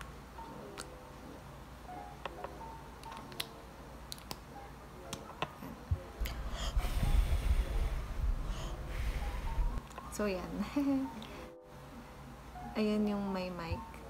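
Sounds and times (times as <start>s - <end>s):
breath blowing into microphone: 6.2s - 9.8s.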